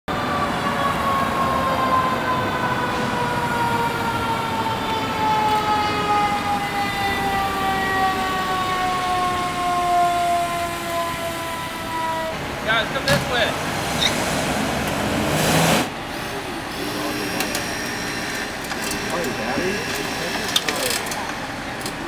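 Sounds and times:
road traffic hiss: 0.1s - 22.0s
mechanical siren winding down: 0.3s - 12.4s.

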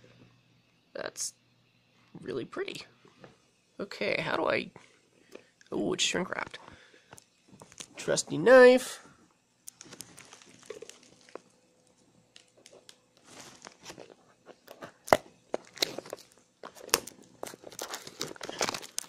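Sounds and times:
plastic wrap crinkling: 9.6s - 19.0s
knife cutting shrink wrap: 14.9s - 19.0s.

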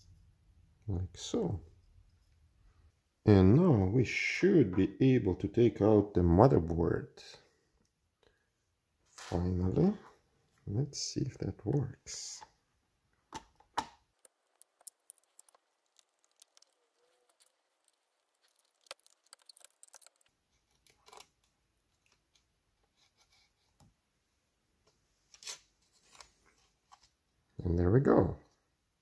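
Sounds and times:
small clicks and scrapes: 13.4s - 23.9s.

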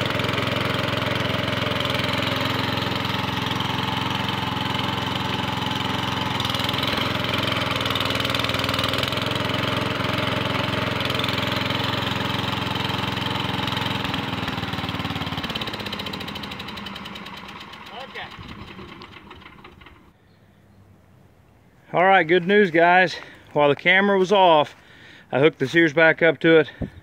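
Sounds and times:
garden tractor engine running: 0.0s - 20.2s.

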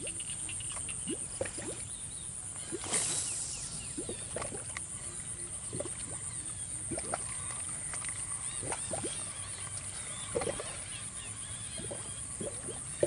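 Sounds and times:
short rising chirps: 2.7s - 4.4s.

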